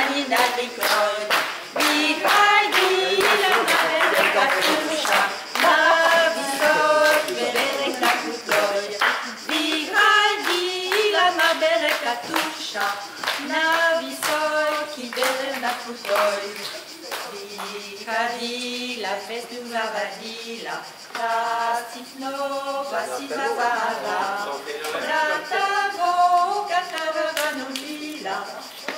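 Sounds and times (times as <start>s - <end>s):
hands clapping in time: 0.0s - 11.2s, 11.8s - 17.8s, 26.9s - 28.0s
women singing together: 0.0s - 28.9s.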